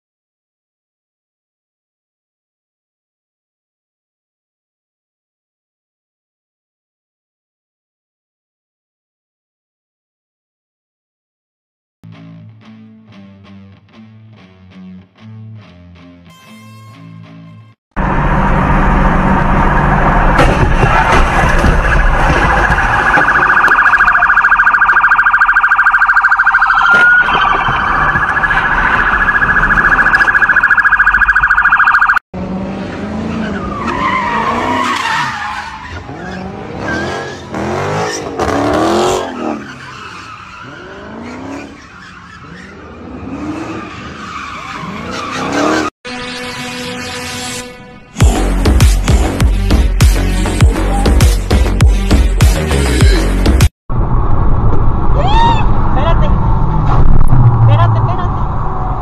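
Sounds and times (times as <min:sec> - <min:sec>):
car alarm blaring: 0:19.4 - 0:20.4, 0:21.5 - 0:32.2.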